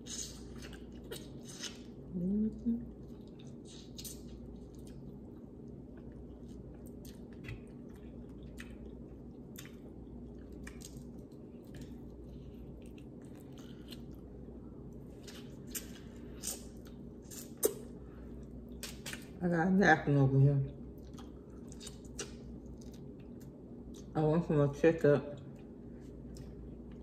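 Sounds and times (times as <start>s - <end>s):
chewing and wet squishing: 0.0s - 2.1s, 2.8s - 19.4s, 20.7s - 24.2s, 25.3s - 27.0s.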